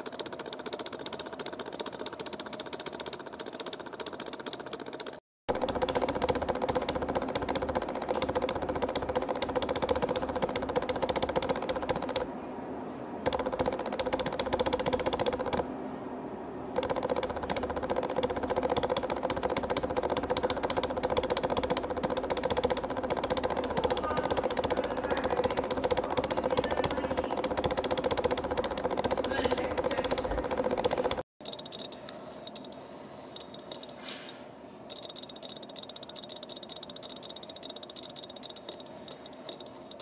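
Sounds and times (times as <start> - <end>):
jackhammer hammering: 5.5 - 12.3, 13.2 - 15.6, 16.8 - 31.3.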